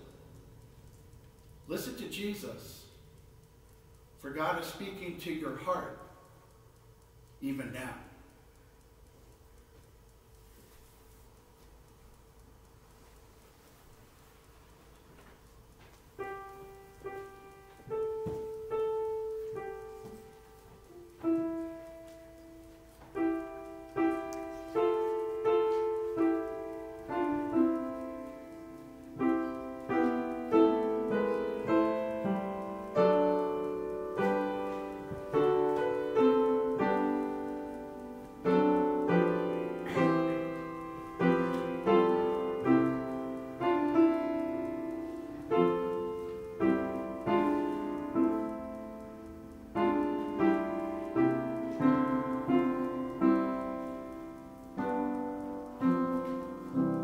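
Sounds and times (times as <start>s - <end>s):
slow solo piano: 16.1s - 57.0s.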